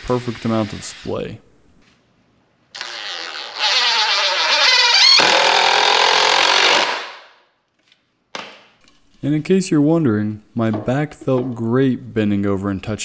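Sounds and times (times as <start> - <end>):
impact driver driving screw: 2.8 - 7.1.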